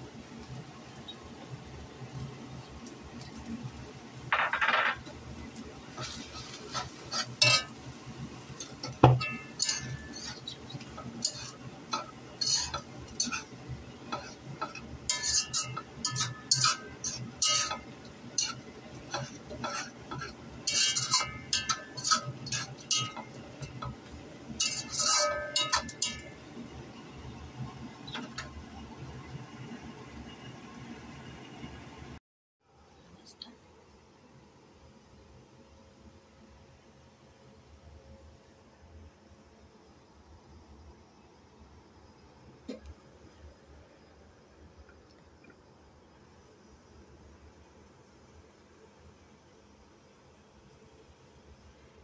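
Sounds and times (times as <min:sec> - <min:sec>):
utensil scraping a metal wok: 0:05.9 - 0:07.9, 0:08.5 - 0:26.4.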